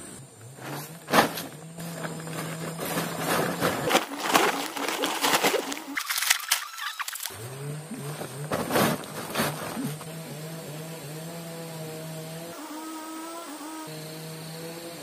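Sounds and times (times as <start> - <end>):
plastic sack rustling: 0.6 - 7.4, 8.0 - 10.2
plant stalks crackling: 0.6 - 10.1.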